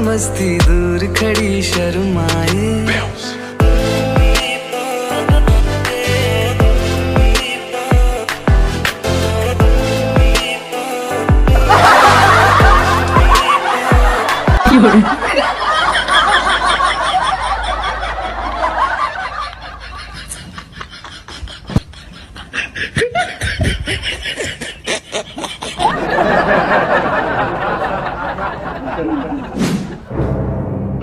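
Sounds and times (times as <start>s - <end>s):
person laughing: 11.6s - 29.6s.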